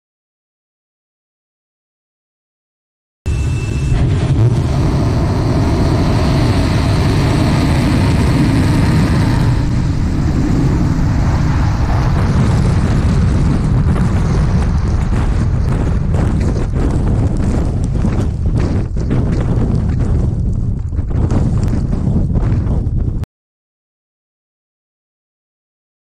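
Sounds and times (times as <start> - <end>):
brief high tone: 3.3 - 4.2
rocket engines deep rumble: 3.3 - 23.2.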